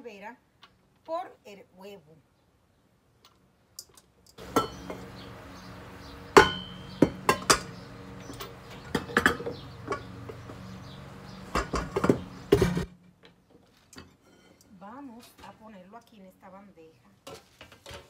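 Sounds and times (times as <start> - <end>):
metallic clanks of beater in bowl: 4.5 - 5.0, 6.4 - 10.1.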